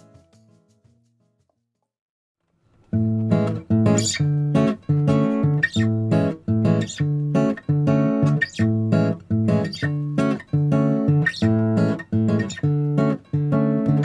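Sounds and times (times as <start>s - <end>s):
strummed guitar chords: 2.9s - 14.0s.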